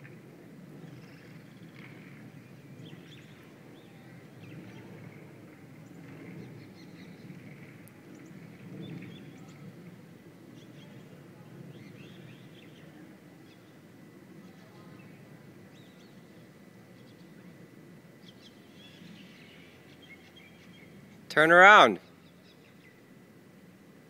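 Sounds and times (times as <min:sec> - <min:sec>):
small birds chirping: 0:11.7 - 0:17.6, 0:18.2 - 0:21.2, 0:22.0 - 0:23.1.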